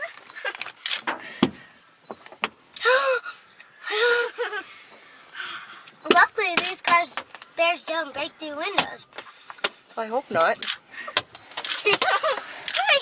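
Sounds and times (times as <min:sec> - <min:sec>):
heavy thud: 0:01.1 - 0:01.7.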